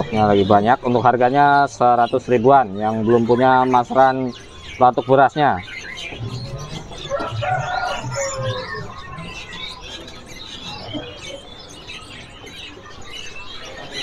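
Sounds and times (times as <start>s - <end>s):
caged birds chirping: 0.0s - 14.0s.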